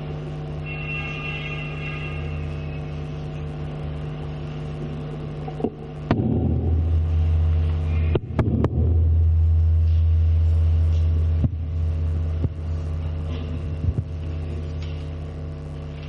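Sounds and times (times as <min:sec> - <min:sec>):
electrical mains hum: 0:00.0 - 0:16.0
sharp knocks and pops: 0:05.6 - 0:06.8, 0:08.1 - 0:08.9, 0:11.4 - 0:11.6.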